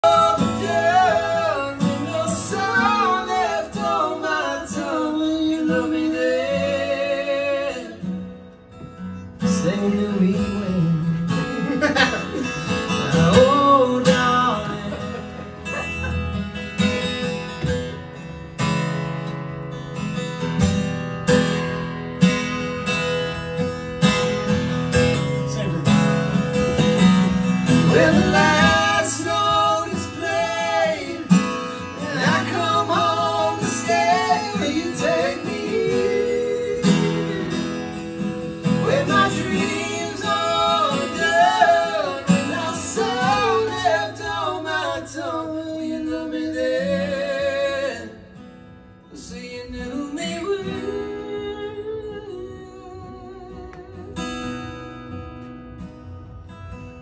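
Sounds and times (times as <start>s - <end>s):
man singing: 0.0s - 8.1s, 9.4s - 15.9s, 27.7s - 37.9s, 38.6s - 48.3s, 49.1s - 54.1s
acoustic guitar strummed: 0.0s - 57.0s.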